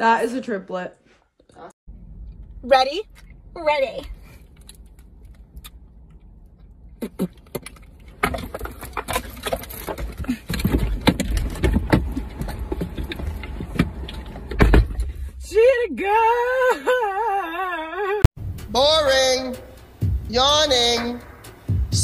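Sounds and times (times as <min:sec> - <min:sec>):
knocks and thumps inside car: 0:07.5 - 0:15.2.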